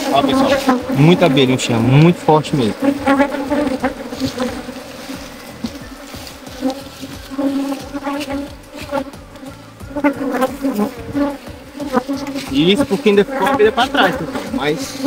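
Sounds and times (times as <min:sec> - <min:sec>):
bees buzzing: 0:00.0 - 0:15.0.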